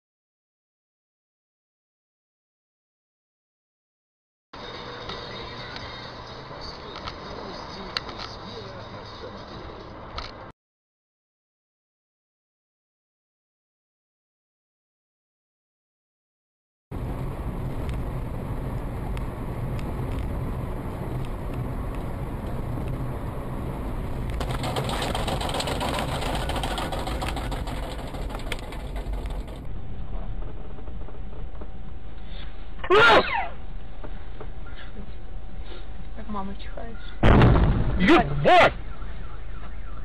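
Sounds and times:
car engine and road noise: 4.6s - 10.5s, 16.9s - 37.0s, 38.1s - 40.0s.

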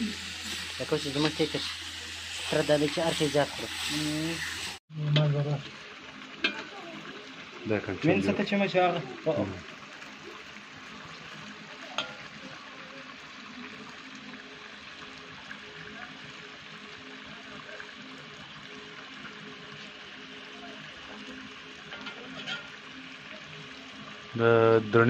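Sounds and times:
food sizzling in a wok: 0.0s - 25.0s
spoons clinking on wok: 21.9s - 22.7s.

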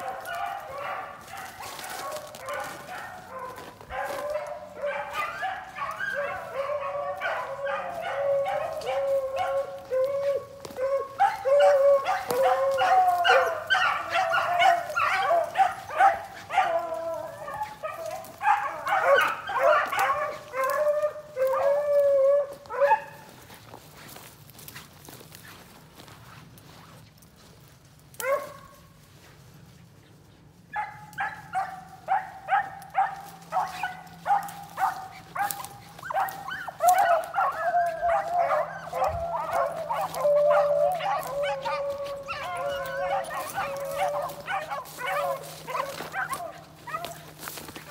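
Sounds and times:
hounds baying: 0.0s - 26.8s, 28.1s - 47.9s.

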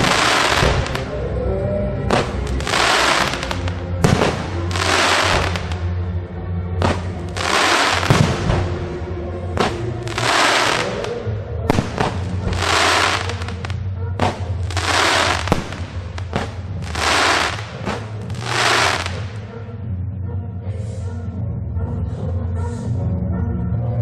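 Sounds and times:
fireworks crackling bursts: 0.0s - 1.1s, 2.1s - 5.9s, 6.8s - 8.6s, 9.6s - 19.5s
fireworks sharp cracks: 0.0s - 1.1s, 2.1s - 5.9s, 6.8s - 8.7s, 9.6s - 19.5s.

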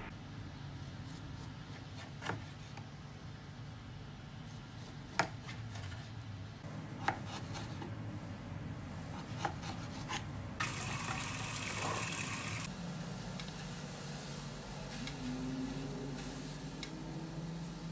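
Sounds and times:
running water hiss: 10.6s - 12.7s.

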